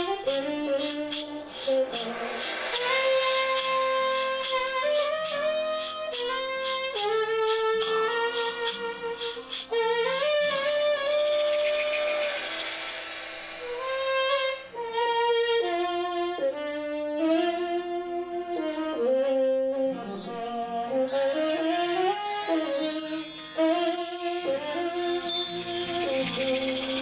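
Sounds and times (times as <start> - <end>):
tenor saxophone melody: 0.0 - 12.8, 13.8 - 27.0
drums: 0.0 - 15.1
cymbal wash: 0.0 - 15.4, 20.2 - 27.0.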